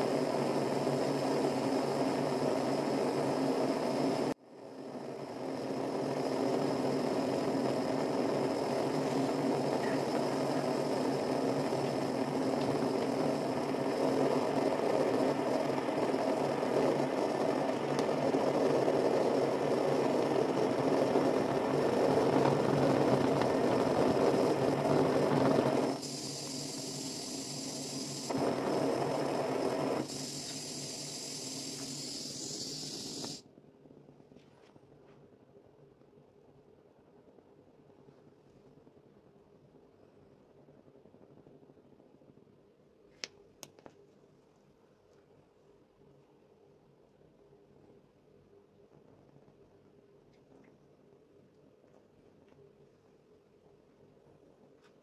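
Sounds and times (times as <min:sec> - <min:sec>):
gas torch flame rushing: 0:00.0 - 0:33.4.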